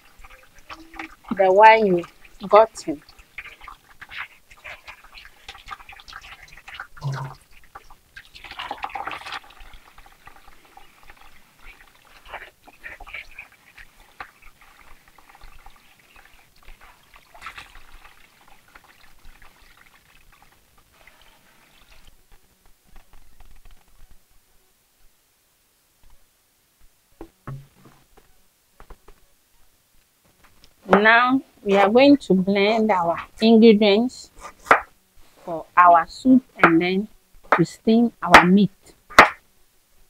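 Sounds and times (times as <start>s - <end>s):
wet pulp squelching in a sieve: 0.0s - 22.1s
liquid trickling and dripping: 0.0s - 22.2s.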